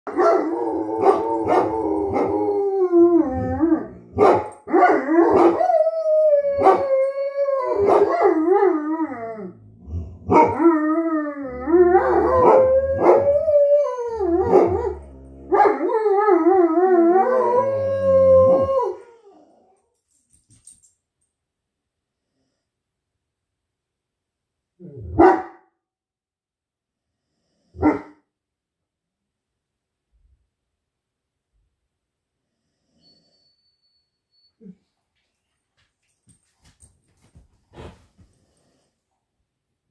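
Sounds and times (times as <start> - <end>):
dogs barking: 0.1 - 2.3, 4.1 - 5.7, 7.8 - 8.4, 10.3 - 10.6, 14.4 - 15.9, 25.2 - 25.6, 27.8 - 28.2
dogs howling: 0.1 - 9.6, 10.3 - 19.7.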